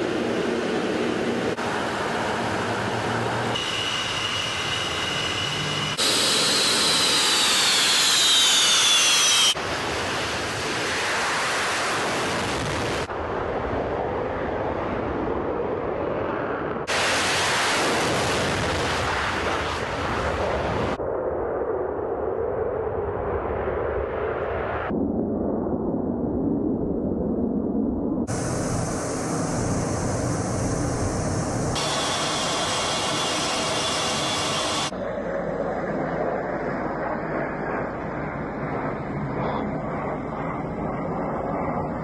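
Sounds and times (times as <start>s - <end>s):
steady high whine: 0.0s - 13.2s, 28.2s - 35.3s
jet engines at high power: 0.0s - 25.1s, 25.8s - 42.0s.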